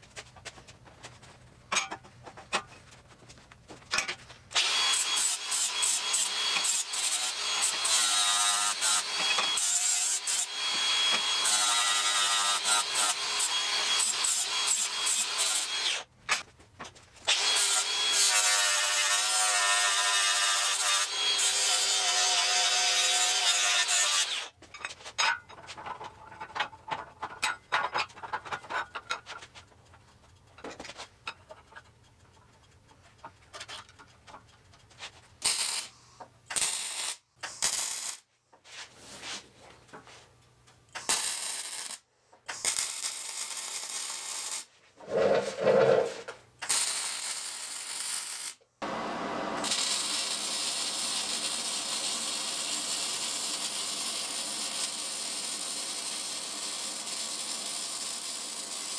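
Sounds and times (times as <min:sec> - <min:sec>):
arc welder: 0:04.5 - 0:16.4, 0:17.2 - 0:24.6, 0:35.4 - 0:38.3, 0:40.9 - 0:45.2, 0:46.0 - 0:58.9
angle grinder whining: 0:04.6 - 0:16.0, 0:17.3 - 0:24.5.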